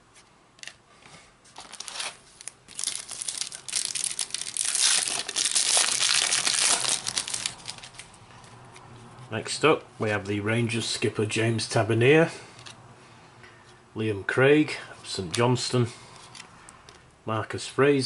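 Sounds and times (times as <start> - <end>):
card pack wrapper tearing and crinkling: 1.6 - 8.1.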